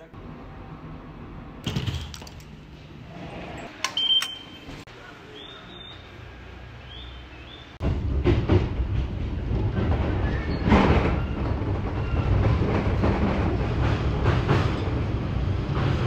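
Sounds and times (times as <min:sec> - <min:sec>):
train wheels rumbling on track: 0:07.8 - 0:16.0.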